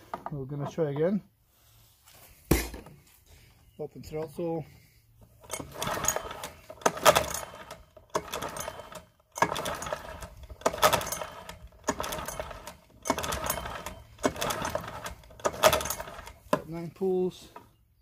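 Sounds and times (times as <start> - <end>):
outboard pull-starter whirring: 5.2 - 16.8.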